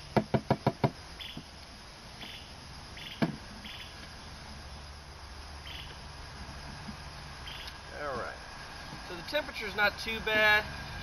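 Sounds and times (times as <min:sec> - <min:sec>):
crickets chirping: 0:00.0 - 0:11.0
sharp knocks: 0:00.1 - 0:01.5, 0:03.1 - 0:03.5.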